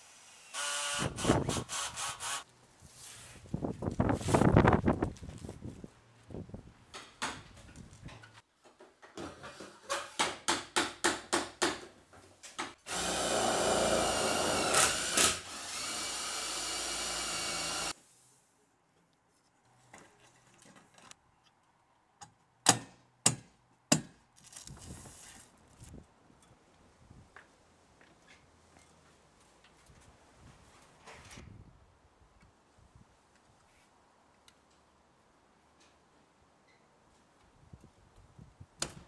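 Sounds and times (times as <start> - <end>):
cordless drill driving screw: 0.3 - 2.4, 12.9 - 17.9.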